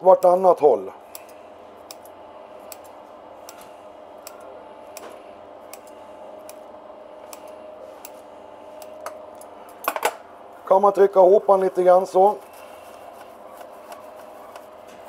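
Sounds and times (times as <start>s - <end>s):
faint steady hum: 0.0s - 15.0s
scissors snipping dough: 2.7s - 6.6s.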